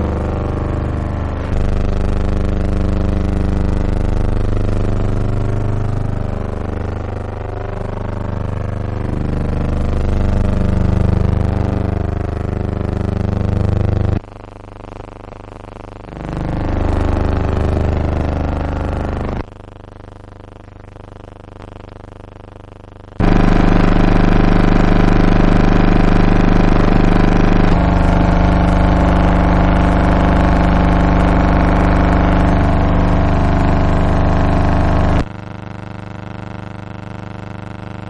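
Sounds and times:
low buzzing drone: 0:00.0 - 0:03.1, 0:04.2 - 0:14.2, 0:23.2 - 0:35.3.

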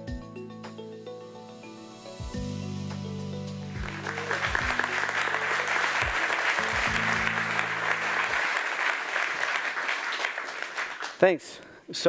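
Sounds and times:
low sustained music chords: 0:01.1 - 0:08.6
audience applauding: 0:03.7 - 0:11.3.

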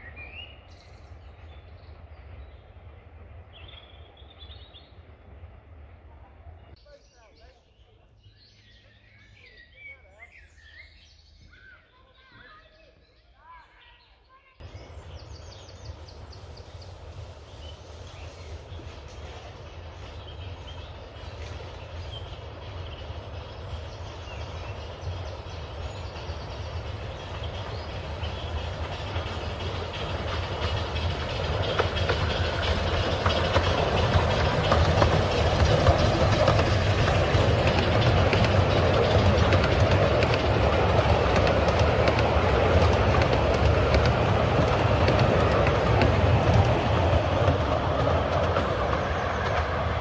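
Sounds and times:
miniature steam train passing: 0:00.0 - 0:50.0.

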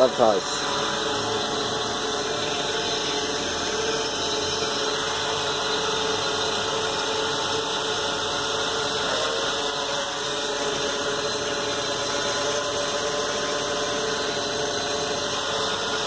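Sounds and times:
quadcopter hovering hum: 0:00.0 - 0:16.0.

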